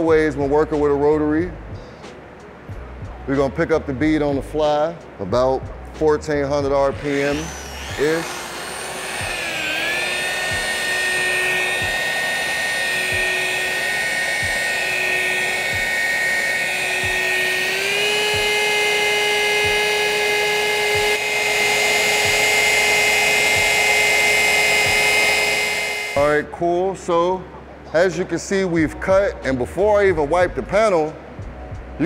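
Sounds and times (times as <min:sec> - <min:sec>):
rotary polisher motor whine: 0:06.9 - 0:26.3.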